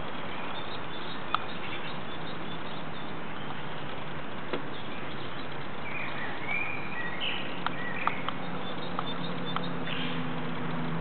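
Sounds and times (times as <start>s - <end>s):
birds chirping: 0.0s - 11.0s
steady outdoor hiss: 0.0s - 11.0s.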